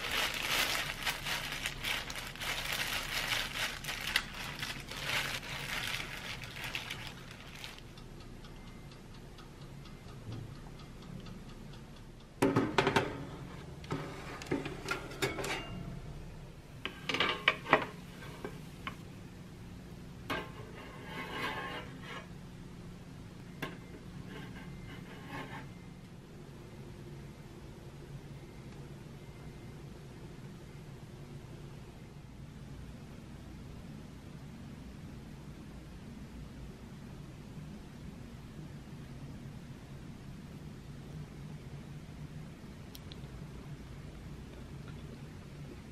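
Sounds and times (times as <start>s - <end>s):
plastic glove crinkling: 0.0s - 7.9s
low steady hum: 0.0s - 45.9s
metal baking tray clanking: 13.9s - 15.9s, 16.9s - 18.6s, 20.3s - 22.3s
spatula scraping on a wire rack: 20.3s - 22.3s, 23.7s - 25.8s.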